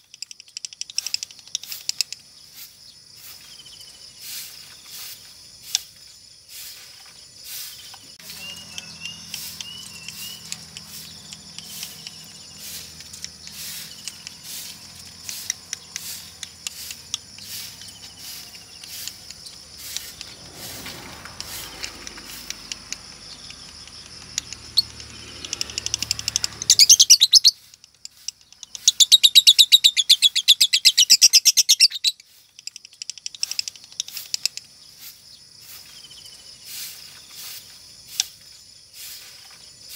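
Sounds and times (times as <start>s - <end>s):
lovebird rattling chatter: 0.0s - 35.9s
faint bird chirps: 6.0s - 20.2s, 23.2s - 34.2s.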